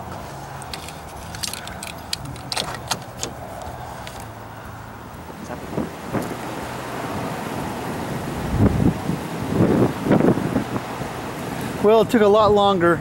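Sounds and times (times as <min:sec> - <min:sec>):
metallic clicks and clinks: 0:00.6 - 0:04.3.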